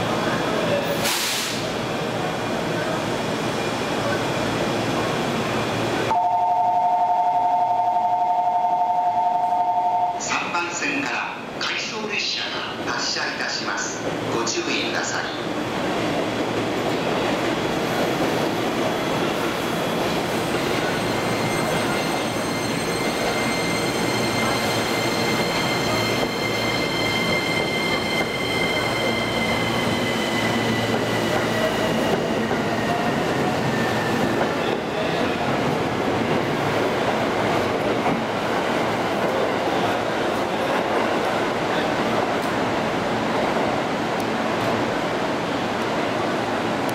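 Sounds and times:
electric train rumbling past: 0.0s - 46.9s
train high-pitched whine: 18.0s - 34.7s.

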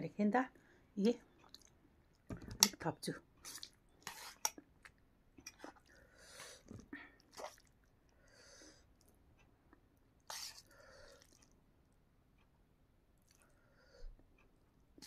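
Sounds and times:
fork scraping metal container: 3.4s - 4.6s, 10.3s - 10.7s.

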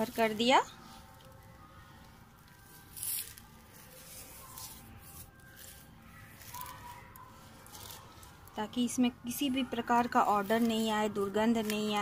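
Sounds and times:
hand scraping dry sand: 2.4s - 8.6s.

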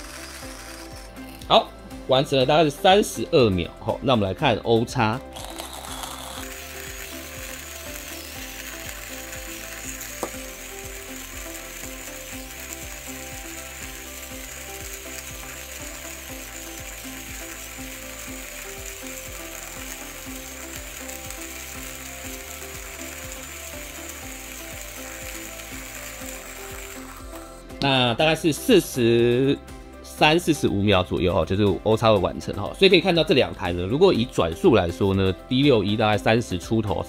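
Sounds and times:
coffee grinder motor hum: 0.0s - 1.5s, 5.3s - 27.9s
beans crackling as crushed: 0.0s - 1.7s, 5.3s - 28.0s.

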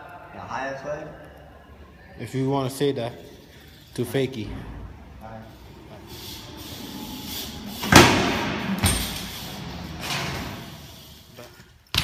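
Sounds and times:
bike banging on concrete ledge: 7.8s - 9.4s.

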